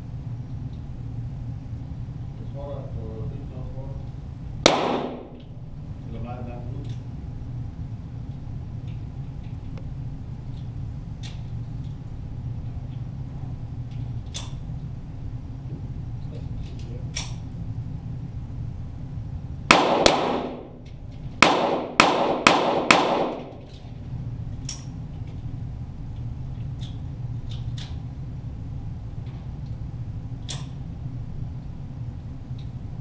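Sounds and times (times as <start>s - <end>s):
pistol shots with echo: 4.6s - 5.4s, 19.7s - 20.8s, 21.4s - 23.6s.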